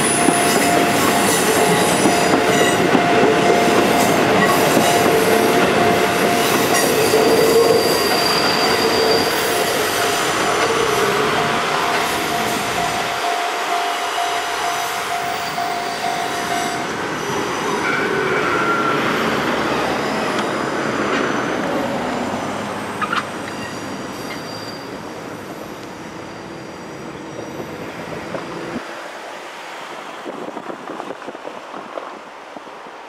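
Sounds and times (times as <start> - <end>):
diesel railcar engines running: 0.0 - 28.8
train wheels squealing: 6.2 - 13.0, 14.0 - 28.8.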